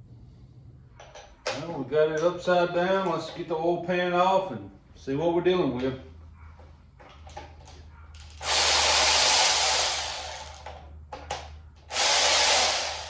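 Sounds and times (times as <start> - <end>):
power ratchet running: 8.2 - 10.8, 11.9 - 13.0.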